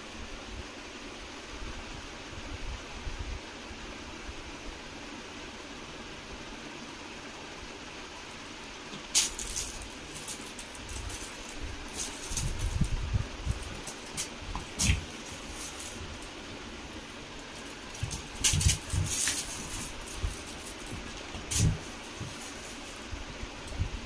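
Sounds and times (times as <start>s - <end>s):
background hiss: 0.0s - 24.0s
plastic bag crinkling: 9.1s - 23.1s.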